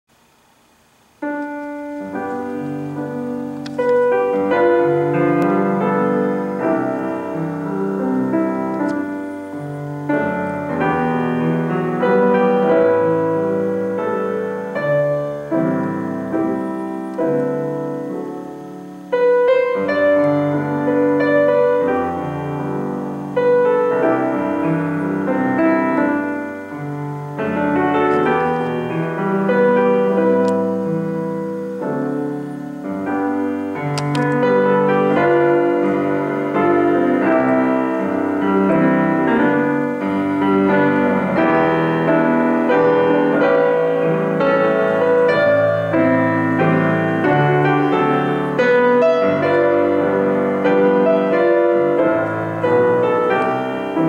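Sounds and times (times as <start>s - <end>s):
grand piano playing chords: 0.1s - 54.0s.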